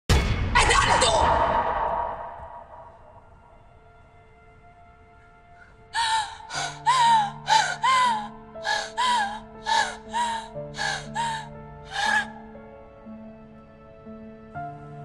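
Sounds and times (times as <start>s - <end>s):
soft background music: 0.1s - 15.0s
woman sobbing: 5.9s - 12.4s.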